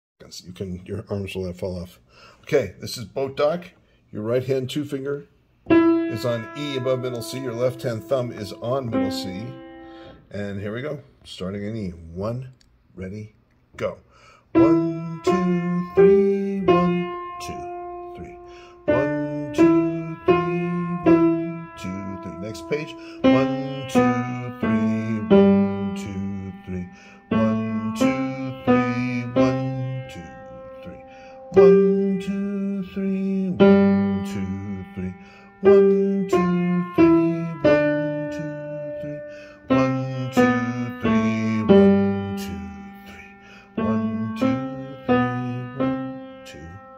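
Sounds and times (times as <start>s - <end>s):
slow piano piece: 5.6s - 10.3s, 14.6s - 46.9s.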